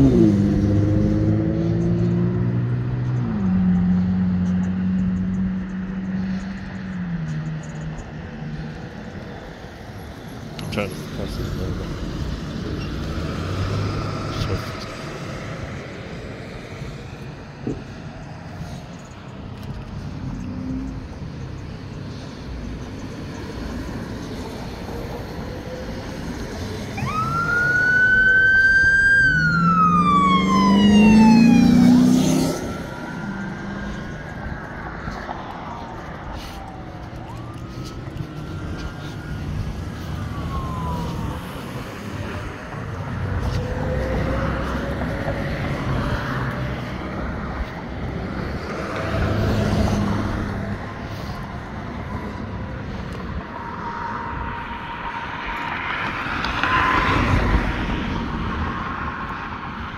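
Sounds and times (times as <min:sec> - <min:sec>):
road traffic: 0:00.0 - 0:59.9
low vehicle rumble: 0:10.6 - 0:59.9
emergency siren wailing: 0:24.0 - 0:59.9.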